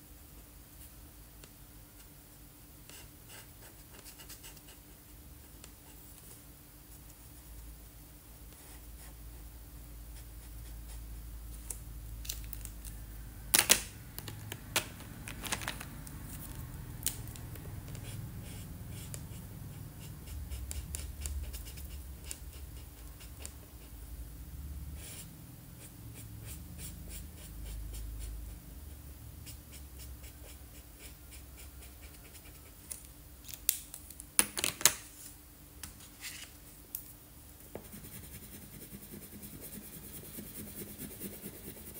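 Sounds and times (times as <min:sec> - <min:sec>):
marker scratching on paper: 0:18.0 - 0:23.9, 0:25.0 - 0:28.5, 0:37.8 - 0:41.9.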